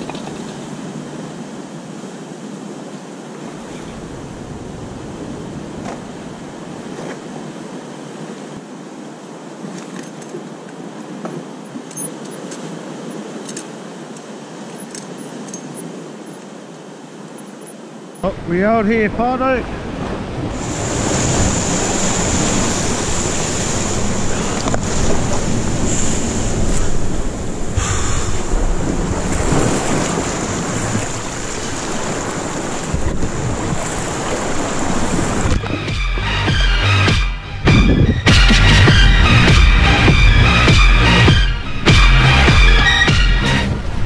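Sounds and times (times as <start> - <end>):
wind buffeting microphone: 0.0 - 8.9, 18.2 - 36.0, 37.6 - 38.4
choppy sea splashing: 0.0 - 44.0
surf washing: 0.0 - 44.0
dive gear clinking and rustling: 14.7 - 16.4
wind noise on microphone: 19.6 - 44.0.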